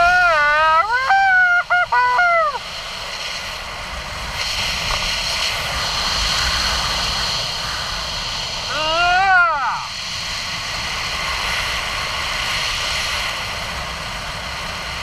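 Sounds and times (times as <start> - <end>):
person whooping yell: 0.0 - 2.6, 8.7 - 9.9
wind rushing over microphone: 0.0 - 15.0.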